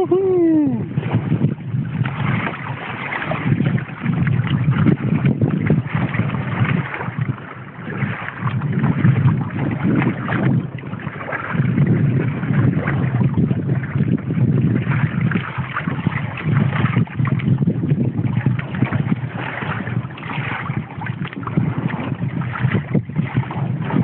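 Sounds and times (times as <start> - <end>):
water splashing along hull: 0.0 - 24.0
wind buffeting microphone: 0.0 - 24.0.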